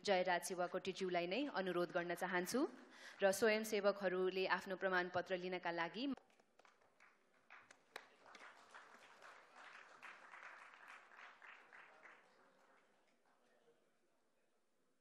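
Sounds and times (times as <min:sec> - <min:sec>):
audience applause: 0:06.6 - 0:13.2.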